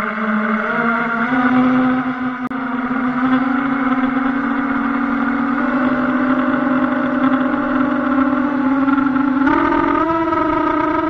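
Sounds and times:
drone propellers humming: 0.0 - 11.0.

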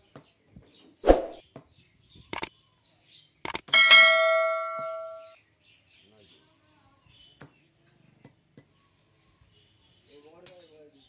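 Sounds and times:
mouse clicks: 2.3 - 2.5, 3.5 - 3.7
notification bell ding: 3.7 - 5.3.

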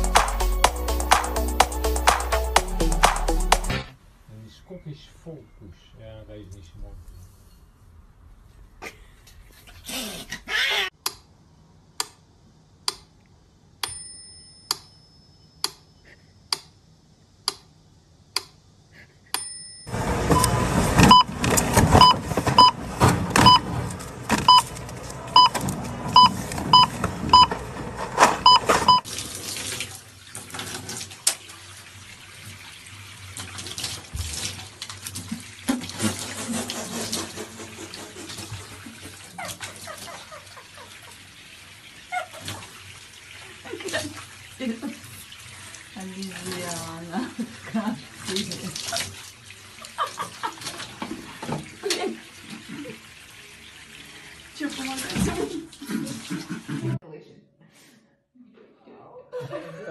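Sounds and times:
short high beeps: 20.4 - 21.3, 28.4 - 29.0
tap running into bathtub: 33.4 - 39.2.

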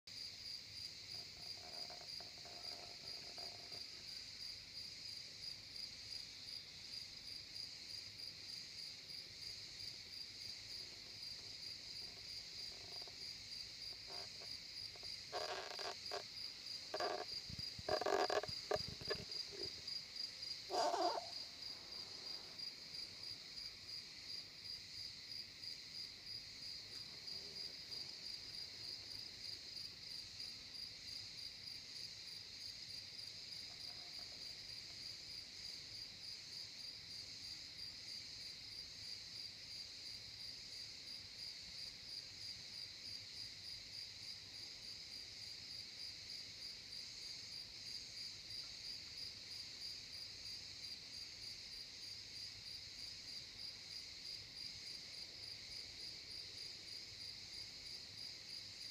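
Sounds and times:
crickets chirping: 0.1 - 58.9.

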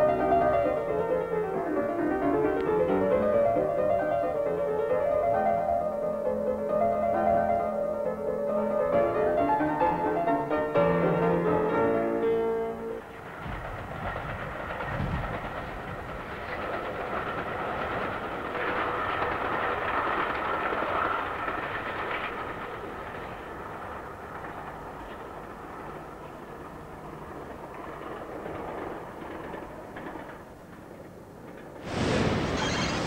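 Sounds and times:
piano music: 0.0 - 13.1
passenger train running: 0.0 - 33.0.

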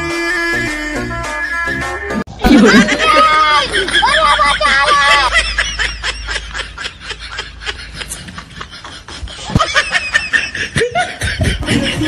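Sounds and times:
person laughing: 2.4 - 12.0.

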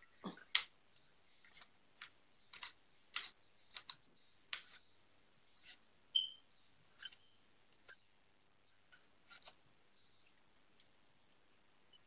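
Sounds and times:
short high beep: 6.2 - 6.4.

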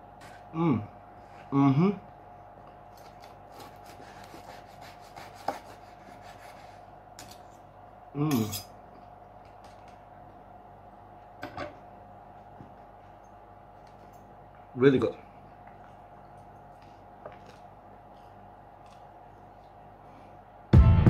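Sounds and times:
knife cutting pizza crust: 3.0 - 7.4.

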